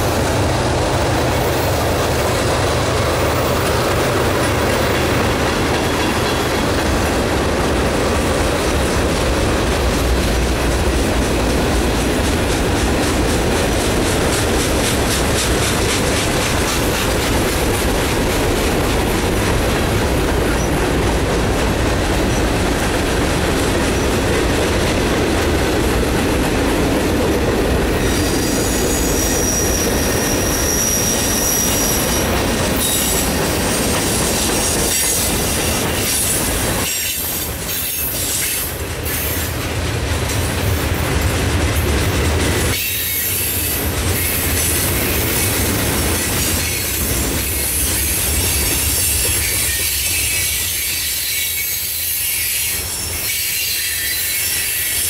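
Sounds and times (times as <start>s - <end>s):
train wheels rumbling on rails: 0.0s - 55.0s
high wheel squeal: 28.0s - 36.2s, 46.6s - 55.0s.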